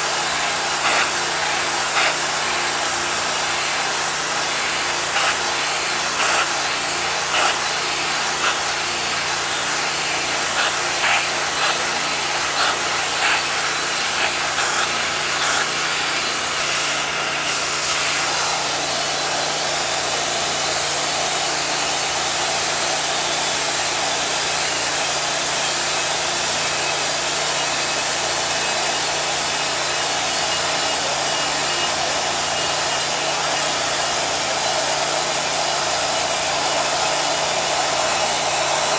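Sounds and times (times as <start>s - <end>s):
pressure washer spray hiss: 0.0s - 38.9s.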